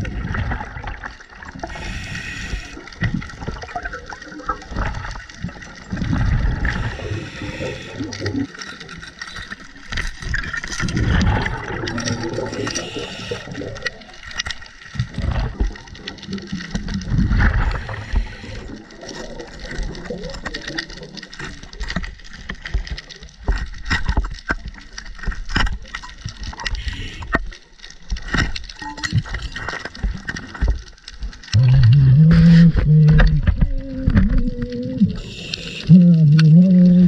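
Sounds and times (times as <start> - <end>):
underwater bubbles gurgling: 0.0 - 37.0
hiss of inhaled air: 1.7 - 2.8, 6.8 - 8.1, 26.8 - 27.3, 35.2 - 35.9.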